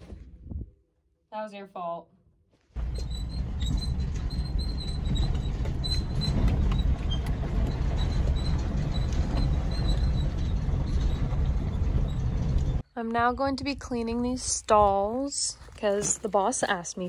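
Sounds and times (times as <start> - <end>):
truck low rumble: 2.8 - 12.8
faint squeaks and light clicks: 2.8 - 12.9.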